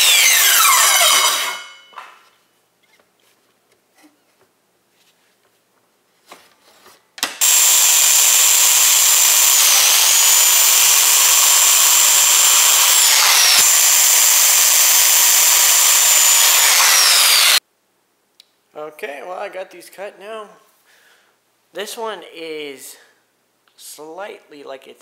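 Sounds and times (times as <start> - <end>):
circular saw cutting wood: 0.0 - 1.8, 7.4 - 17.6.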